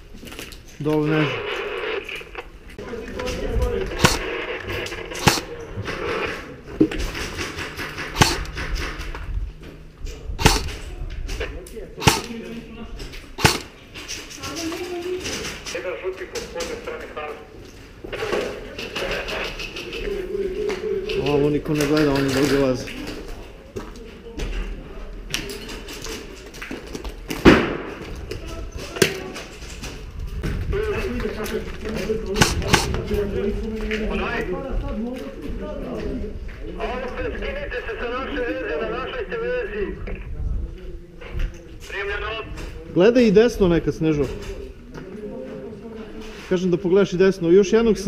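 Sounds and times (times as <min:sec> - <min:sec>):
airsoft rifle shots: 0:03.9 - 0:06.2, 0:07.1 - 0:09.1, 0:10.4 - 0:10.9, 0:12.0 - 0:12.5, 0:13.4 - 0:13.8, 0:32.3 - 0:33.0.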